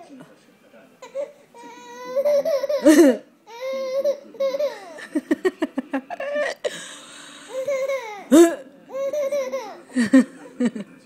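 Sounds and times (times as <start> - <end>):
baby laughing: 1.0 - 5.3, 7.4 - 10.3.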